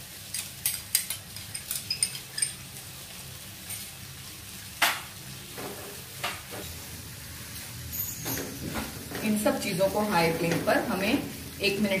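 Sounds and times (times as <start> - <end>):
vegetables sizzling in a wok: 0.0 - 12.0
spoon clinking on glass bowl: 0.6 - 2.6.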